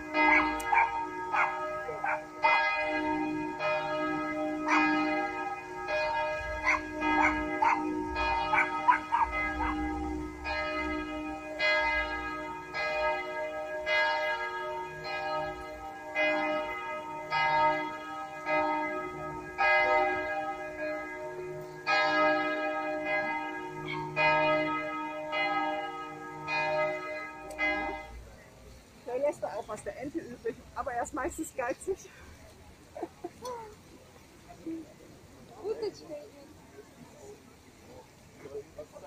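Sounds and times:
church bells pealing: 0:00.0 - 0:28.2.

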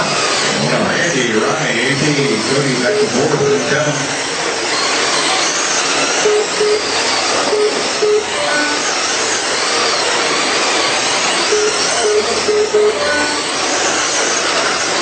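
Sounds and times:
rc car motors whining: 0:00.0 - 0:15.0
short beeps: 0:06.2 - 0:06.9, 0:07.5 - 0:08.9, 0:11.5 - 0:13.4.

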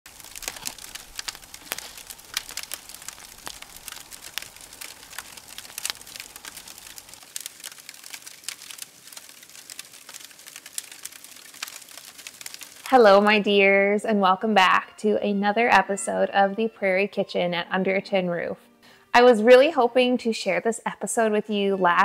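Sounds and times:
wood fire crackling and popping: 0:00.0 - 0:13.3
soft hiss: 0:00.1 - 0:13.1.

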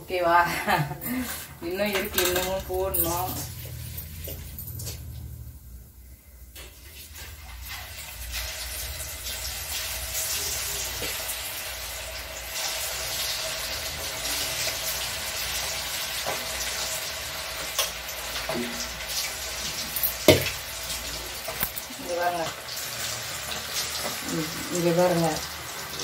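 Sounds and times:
food sizzling in hot oil: 0:06.3 - 0:26.0.

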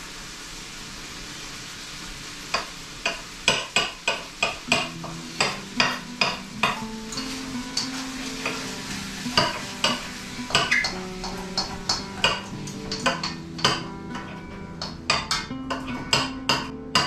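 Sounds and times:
steady background hiss: 0:00.0 - 0:17.0
knife chopping on cutting board: 0:09.4 - 0:17.0.

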